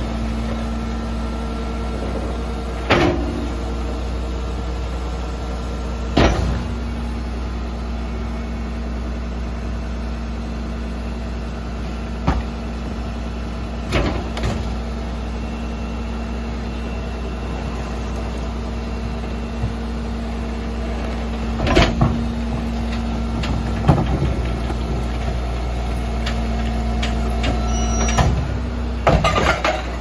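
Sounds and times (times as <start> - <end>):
garbage truck idling: 0.0 - 30.0
hydraulic packer tone: 0.0 - 30.0
metal clanks: 29.0 - 30.0.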